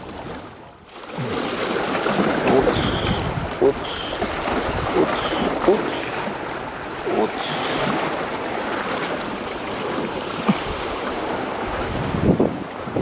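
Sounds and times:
sea waves washing against breakwater: 0:00.0 - 0:13.0
wind noise on microphone: 0:02.5 - 0:05.7, 0:11.6 - 0:13.0.

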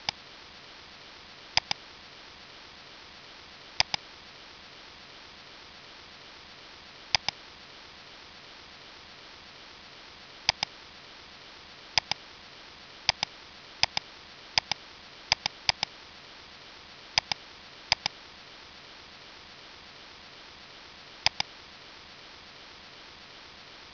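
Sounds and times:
steady hiss: 0:00.0 - 0:23.9
computer mouse button clicks: 0:03.8 - 0:04.0, 0:07.2 - 0:07.4, 0:10.5 - 0:10.7, 0:12.0 - 0:12.2, 0:13.1 - 0:14.0, 0:14.6 - 0:15.9, 0:17.2 - 0:18.2, 0:21.2 - 0:21.5.

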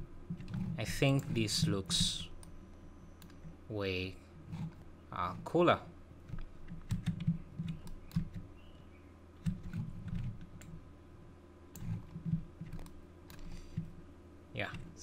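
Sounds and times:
keyboard and mouse clicks: 0:03.2 - 0:03.5, 0:06.3 - 0:08.5, 0:09.4 - 0:10.8, 0:11.7 - 0:13.9.

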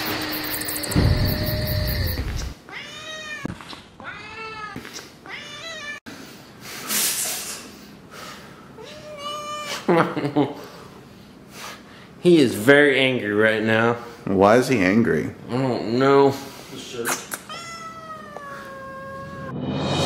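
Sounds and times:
cat meowing: 0:01.5 - 0:06.0, 0:17.4 - 0:19.6
music: 0:19.5 - 0:20.0.

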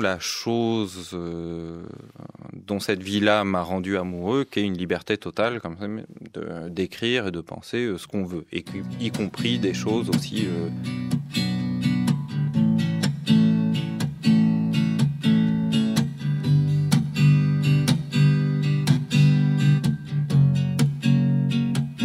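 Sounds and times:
guitar strumming chords: 0:08.7 - 0:22.0.

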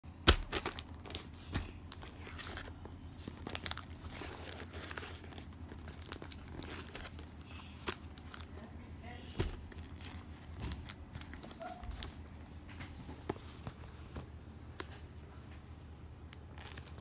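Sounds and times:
plastic packaging crinkling: 0:00.2 - 0:12.2, 0:16.3 - 0:17.0.

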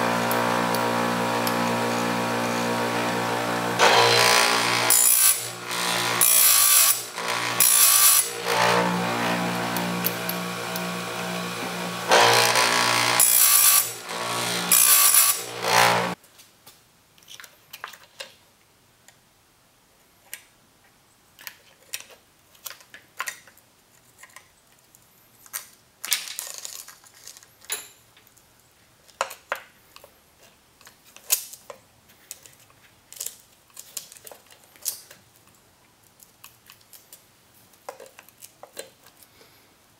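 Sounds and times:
grinder grinding saw chain: 0:00.0 - 0:16.2.

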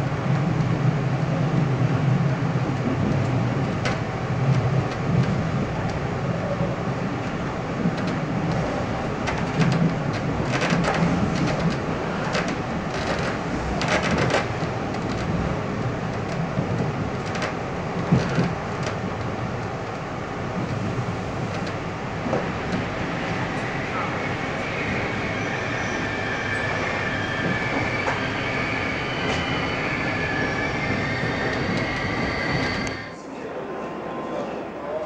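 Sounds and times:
train rumbling on track: 0:00.0 - 0:35.0
wheels clacking over rail joints: 0:07.2 - 0:23.8.

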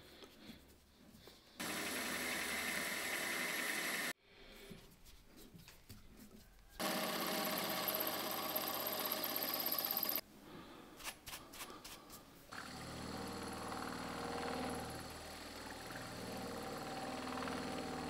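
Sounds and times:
milling machine whining: 0:01.6 - 0:04.1, 0:06.8 - 0:10.2.

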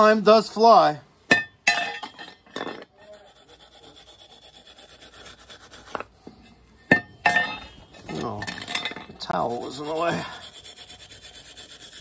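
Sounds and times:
metal tubes clinking: 0:01.3 - 0:02.9, 0:06.8 - 0:09.3.

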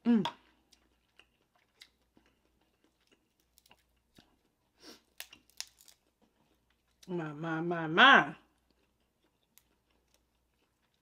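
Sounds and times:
soft chewing: 0:00.3 - 0:07.1, 0:08.4 - 0:11.0
crab shell cracking: 0:02.9 - 0:04.3, 0:05.1 - 0:06.0.

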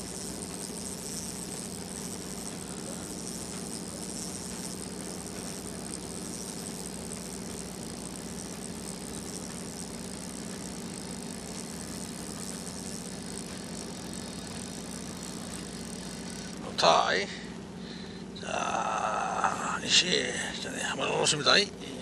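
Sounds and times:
boat engine idling: 0:00.0 - 0:17.2.

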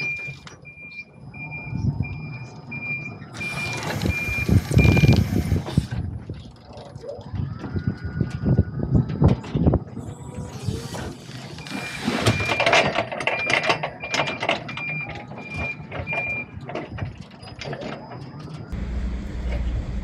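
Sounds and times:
reversing alarm beeping: 0:00.0 - 0:05.4, 0:11.5 - 0:16.6
low steady rumble: 0:18.7 - 0:20.0.

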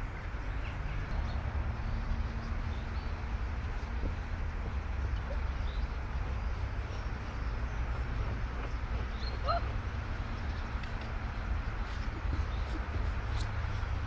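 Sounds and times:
bird chirp: 0:05.2 - 0:14.0.

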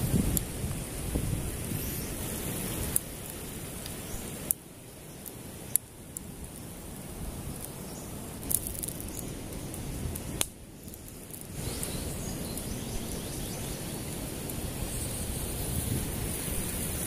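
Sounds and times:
steady hiss: 0:00.0 - 0:17.0
wood fire crackling: 0:00.0 - 0:17.0
fire popping sharply: 0:05.2 - 0:17.0.

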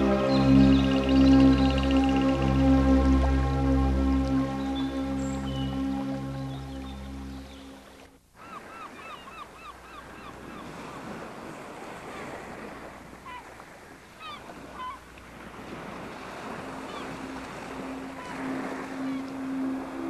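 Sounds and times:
low steady tone: 0:00.0 - 0:08.0, 0:16.4 - 0:20.0
water washing: 0:00.0 - 0:08.0.

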